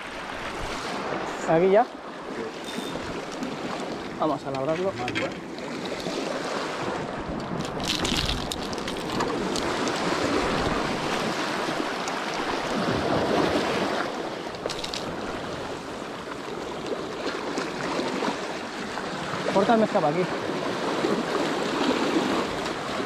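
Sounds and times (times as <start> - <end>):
sea washing over rocks: 2.5 - 23.0
wind on microphone: 6.0 - 16.0.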